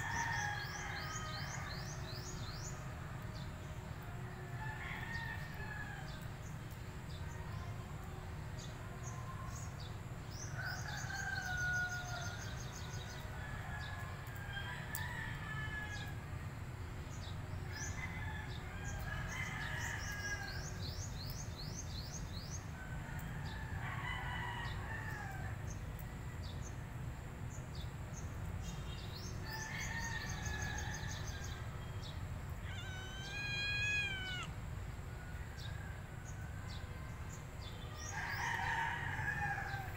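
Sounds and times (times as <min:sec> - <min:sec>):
small birds chirping: 0:30.4 - 0:34.5
rooster crowing: 0:32.6 - 0:34.5, 0:38.0 - 0:39.9.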